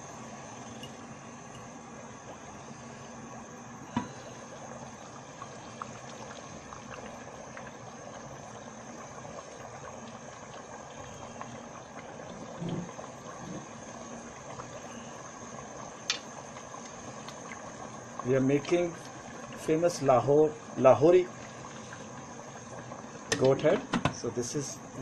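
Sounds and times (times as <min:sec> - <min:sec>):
curry bubbling in a pot: 0:00.0 - 0:25.0.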